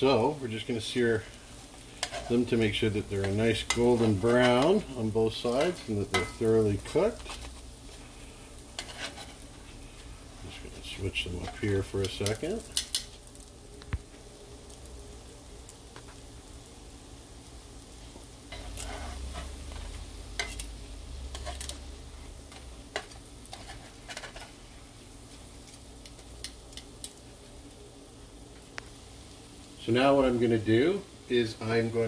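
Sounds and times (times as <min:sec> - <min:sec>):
butter sizzling in frying pan: 0:00.0 - 0:32.0
spatula clicking and scraping: 0:01.7 - 0:07.7, 0:08.8 - 0:09.5, 0:11.2 - 0:13.3, 0:18.5 - 0:24.6.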